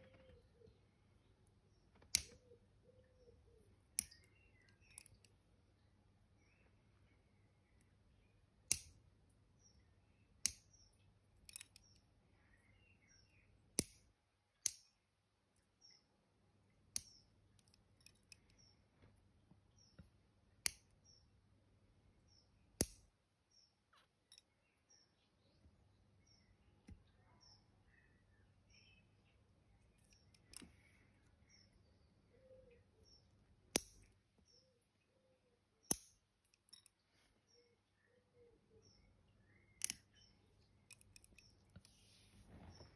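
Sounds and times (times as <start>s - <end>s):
nail clipper snapping: 2.1s - 2.4s, 8.7s - 9.0s, 13.8s - 14.0s, 22.8s - 23.0s, 33.8s - 34.1s, 35.9s - 36.2s, 39.8s - 40.0s.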